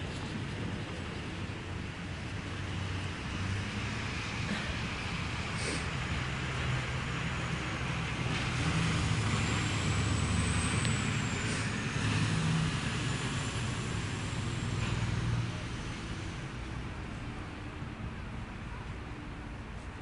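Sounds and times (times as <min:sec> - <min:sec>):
vehicle engine rumbling: 0:00.0 - 0:20.0.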